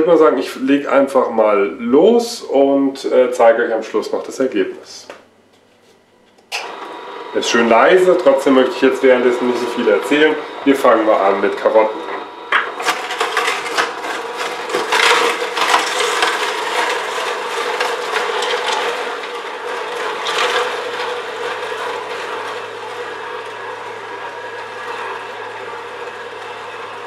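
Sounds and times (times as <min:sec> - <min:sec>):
juicer crunching carrots: 0:06.3 - 0:27.0
low motor hum: 0:06.6 - 0:27.0.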